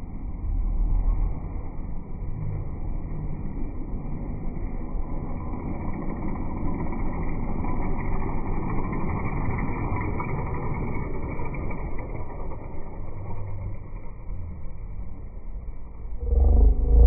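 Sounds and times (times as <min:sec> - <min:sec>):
steady rumbling noise: 0:00.0 - 0:17.0
motorcycle engine passing by: 0:16.1 - 0:17.0.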